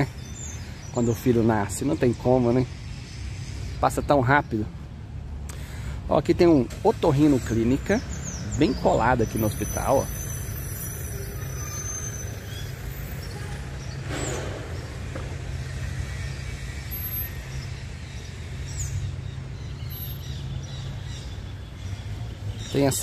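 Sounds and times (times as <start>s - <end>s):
low rumble of traffic: 0.0s - 23.0s
vehicle passing: 0.0s - 23.0s.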